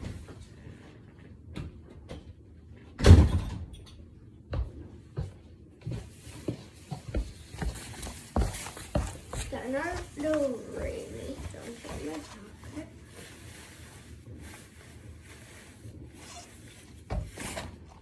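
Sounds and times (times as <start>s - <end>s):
cloth rustling: 6.0s - 18.0s.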